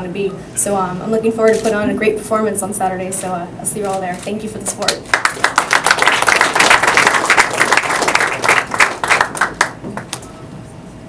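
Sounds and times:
audience applauding: 5.0s - 10.2s.

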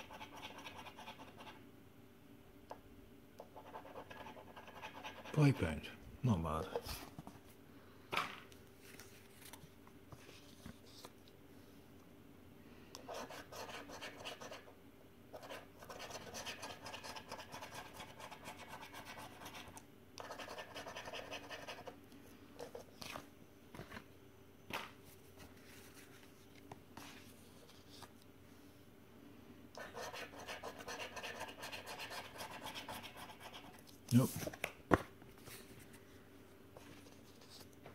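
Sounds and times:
coin scratching scratchcard: 29.8s - 33.7s.

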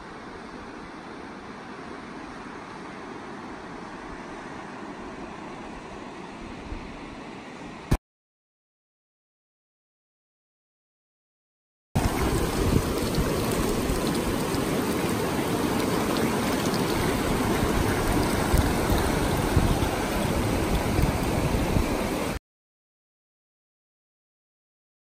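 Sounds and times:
river rapids rushing over rocks: 12.0s - 22.4s.

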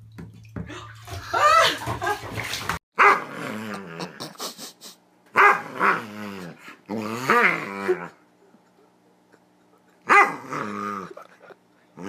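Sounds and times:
dog growling in play: 3.1s - 4.4s, 5.4s - 8.2s, 10.0s - 11.3s.

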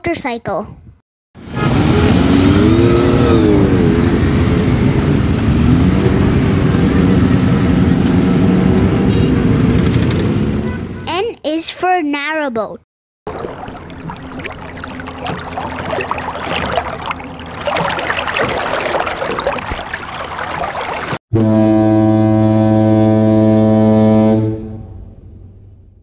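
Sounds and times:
ship horn blast: 1.4s - 9.5s, 21.3s - 25.6s
boat engine hum: 1.4s - 10.0s, 13.3s - 25.1s.

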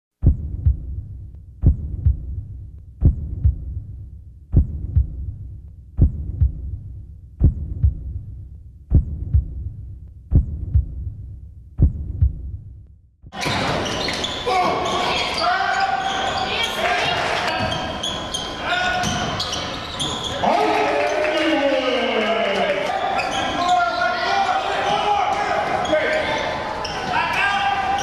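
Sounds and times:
basketball gym noise: 0.2s - 3.8s, 13.2s - 28.0s
heartbeat thumps: 0.2s - 13.4s.

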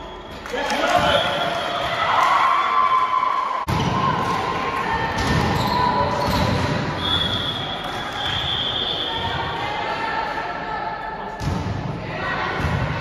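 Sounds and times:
players' voices: 0.1s - 2.4s.

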